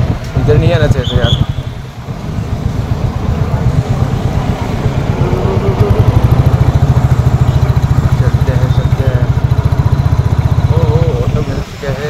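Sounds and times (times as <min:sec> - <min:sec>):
motorcycle engine running at low revs: 0:00.0 - 0:12.0.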